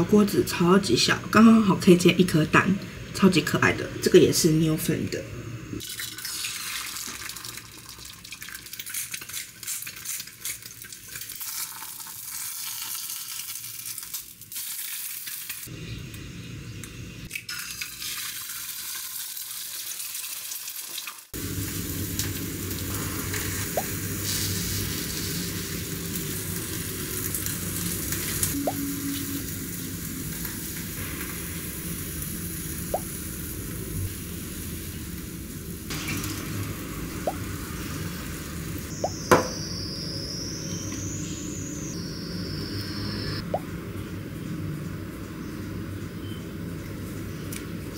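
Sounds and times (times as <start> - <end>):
egg sizzling in oil: 5.8 - 15.7, 17.3 - 39.6.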